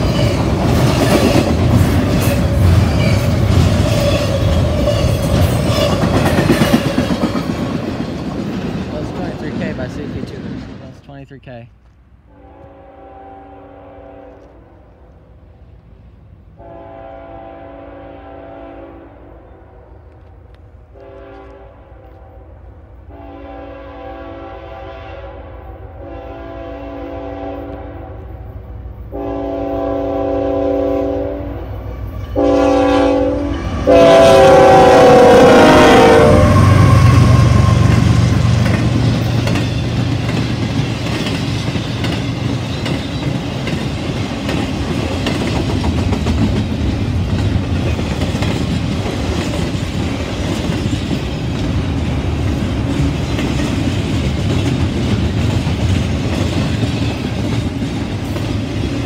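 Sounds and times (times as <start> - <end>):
clickety-clack of rail cars: 0.0 - 12.9, 20.0 - 22.3, 26.2 - 59.0
locomotive rumble: 0.0 - 13.0, 27.1 - 59.0
train air horn blasts: 12.3 - 14.9, 16.6 - 20.1, 20.9 - 28.5, 29.1 - 38.1.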